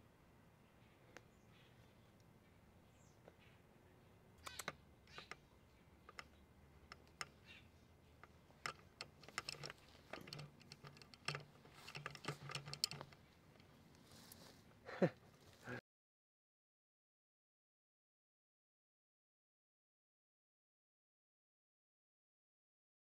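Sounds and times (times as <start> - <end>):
clicks and rustles against shrubs: 4.4 - 15.8.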